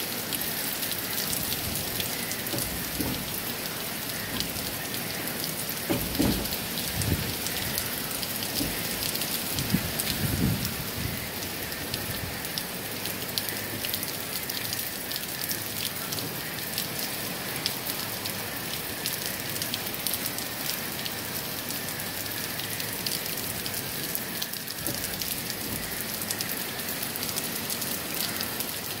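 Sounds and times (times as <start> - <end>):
heavy rain falling: 0.0 - 29.0
wind gusts rumbling: 1.0 - 12.5.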